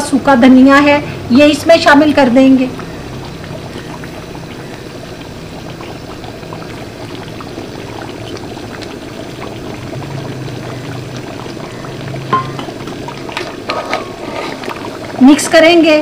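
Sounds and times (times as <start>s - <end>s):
pot bubbling on stove: 0.0s - 16.0s.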